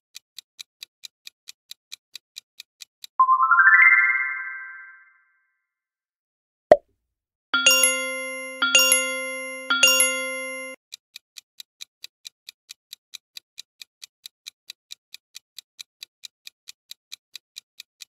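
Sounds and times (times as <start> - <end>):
chime strikes: 7.6 - 10.8
clock-like timer ticking: 7.6 - 18.0.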